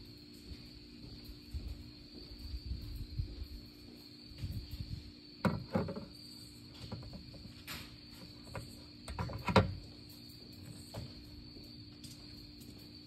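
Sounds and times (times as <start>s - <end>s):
sharp knocks and clatters: 5.4s - 10.0s.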